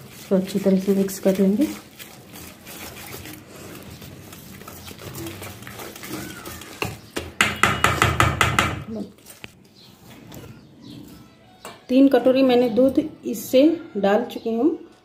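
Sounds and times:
whisk clicking on metal bowl: 0.0 - 8.8.

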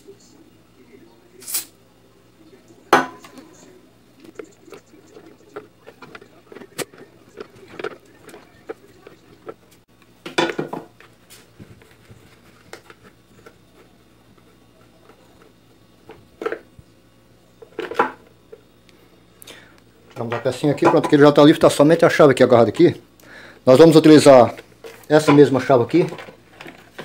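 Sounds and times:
plastic clattering: 4.2 - 16.7, 24.5 - 27.0.

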